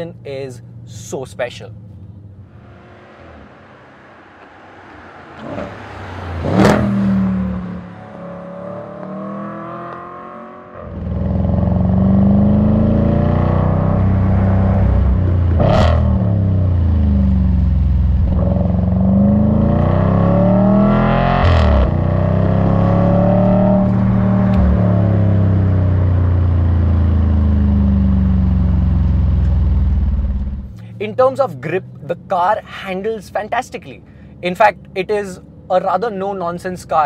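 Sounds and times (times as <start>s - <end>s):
car engine accelerating hard: 1.9s - 32.5s
exhaust crack on upshift: 10.8s - 32.4s.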